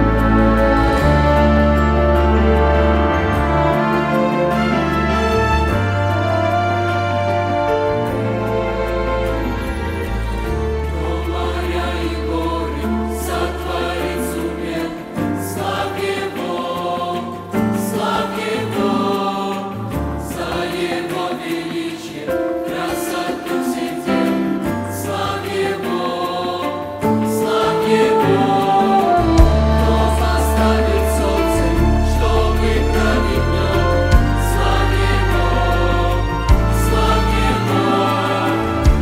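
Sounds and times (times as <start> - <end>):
deep held bass notes: 0.0 - 10.0, 29.0 - 39.0
mixed choir singing a hymn: 0.0 - 39.0.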